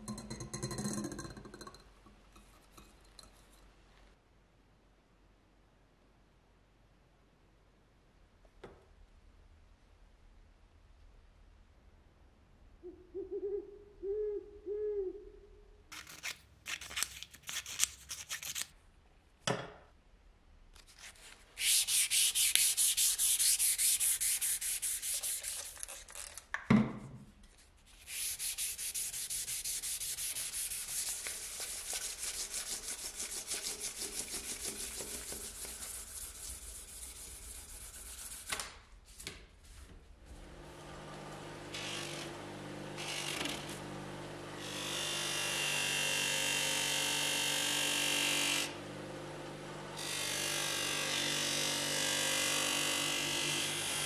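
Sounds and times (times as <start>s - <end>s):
hand sanding strokes: 21.0s - 26.2s, 27.9s - 38.6s.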